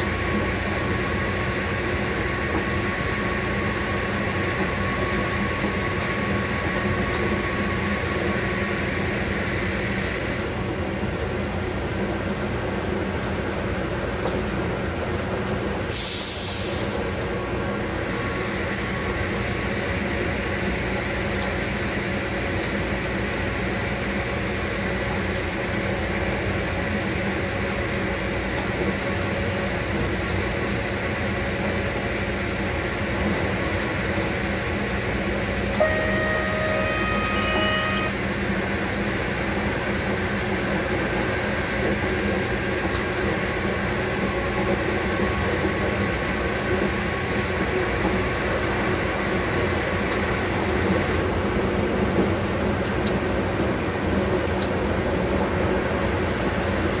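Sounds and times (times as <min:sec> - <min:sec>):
train running noise: 0:00.0 - 0:57.0
pitched tone: 0:35.8 - 0:38.2.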